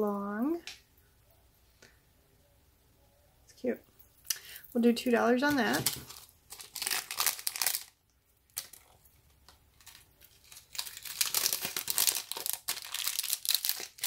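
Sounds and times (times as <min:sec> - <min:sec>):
plastic bag crinkling: 0:05.4 - 0:14.0.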